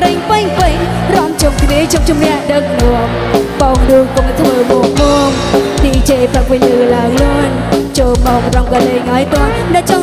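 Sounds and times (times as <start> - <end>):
drum kit beat: 0.0 - 10.0
live band playing dance song: 0.0 - 10.0.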